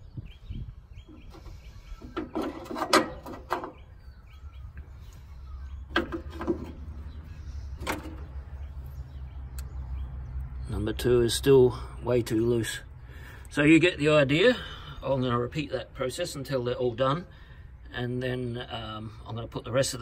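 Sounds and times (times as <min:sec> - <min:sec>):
faint bird chirps: 0:00.0 - 0:10.8.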